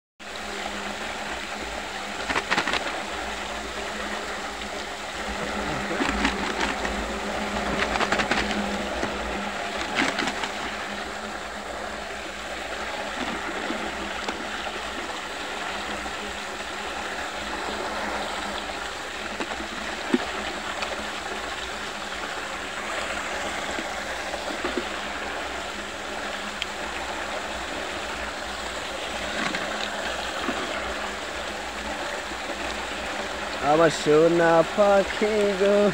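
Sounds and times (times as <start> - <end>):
small clicks: 2.2 - 3.0.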